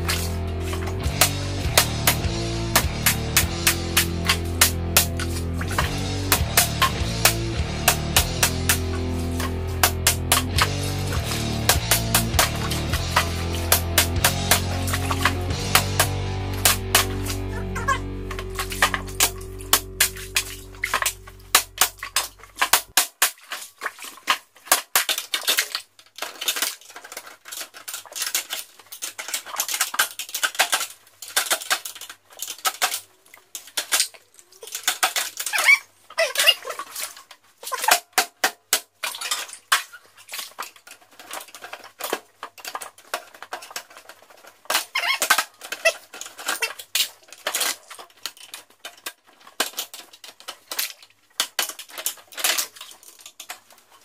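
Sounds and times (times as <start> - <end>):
metal squeaking on metal: 44.9 - 46.8.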